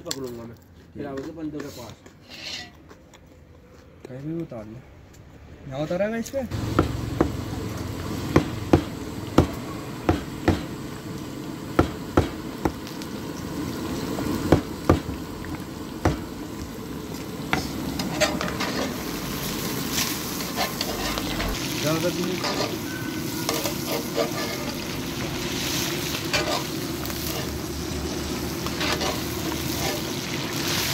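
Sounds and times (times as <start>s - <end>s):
hot oil sizzling in a pan: 6.5s - 30.9s.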